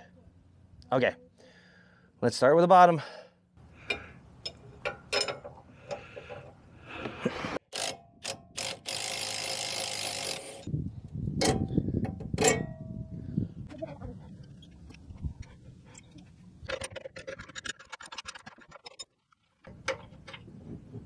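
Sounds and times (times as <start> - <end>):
metallic clicks and knocks: 3.8 - 6.6, 11.4 - 12.8, 14.5 - 20.6
ratchet wrench clicking: 7.7 - 10.7.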